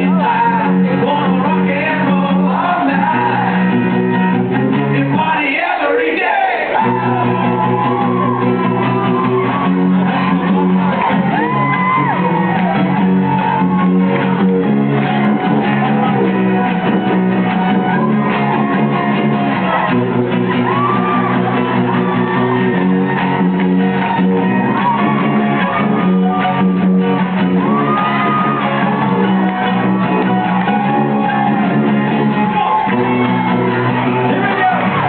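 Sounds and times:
sung and shouted vocals: 0:00.0 - 0:03.9, 0:05.0 - 0:12.2
live rock band playing: 0:00.0 - 0:05.3, 0:06.8 - 0:35.0.

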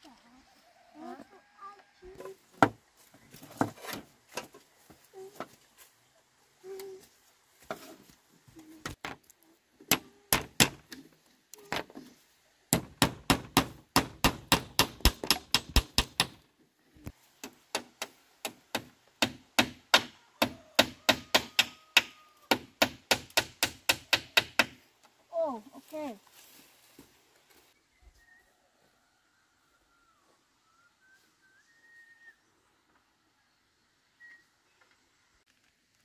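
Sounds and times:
sharp strikes on wood: 0:09.9 - 0:11.0, 0:12.7 - 0:16.4, 0:17.4 - 0:24.8.

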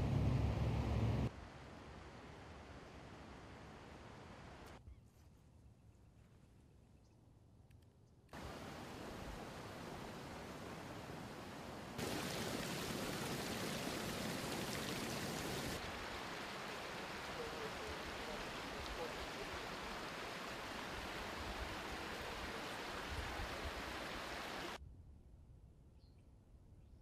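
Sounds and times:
floodwater rushing: 0:08.4 - 0:24.8.

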